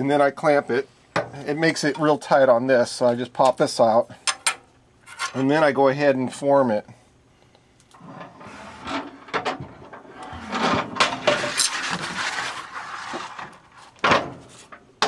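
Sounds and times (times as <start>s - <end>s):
metal scraping rub: 8.0s - 14.8s.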